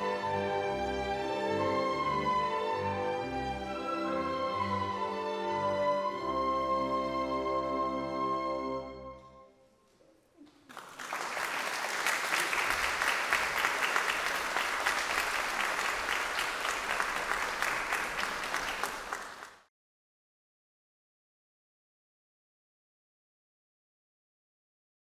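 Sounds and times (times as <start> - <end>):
audience applauding: 10.4 - 19.7.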